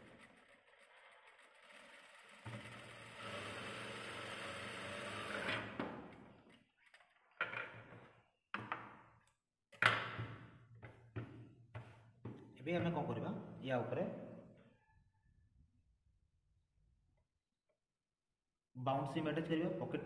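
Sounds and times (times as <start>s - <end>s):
sewing machine stitching: 0.0s - 5.7s.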